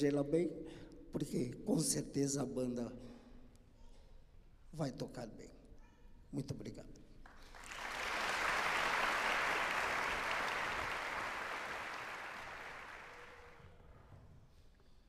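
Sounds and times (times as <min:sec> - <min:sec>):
audience applauding: 0:07.3 - 0:13.6.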